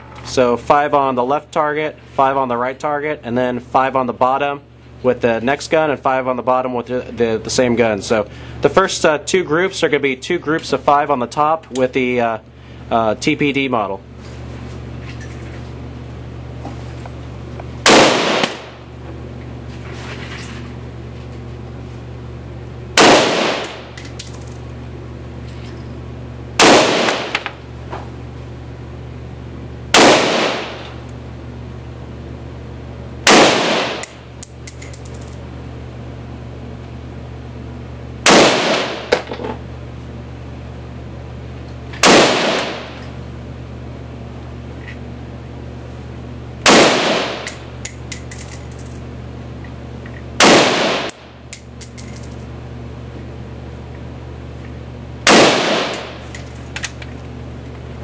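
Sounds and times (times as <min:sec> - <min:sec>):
steady low hum: 0:00.0 - 0:58.0
rifle shots echoing: 0:17.9 - 0:18.8, 0:23.0 - 0:23.9, 0:26.6 - 0:27.5, 0:30.0 - 0:30.8, 0:33.3 - 0:34.2, 0:38.3 - 0:39.1, 0:42.0 - 0:43.0, 0:46.7 - 0:47.5, 0:50.4 - 0:51.3, 0:55.3 - 0:56.2
small metallic clinks: 0:24.0 - 0:24.7, 0:34.4 - 0:35.4, 0:47.5 - 0:49.1, 0:51.5 - 0:52.5, 0:56.2 - 0:57.1.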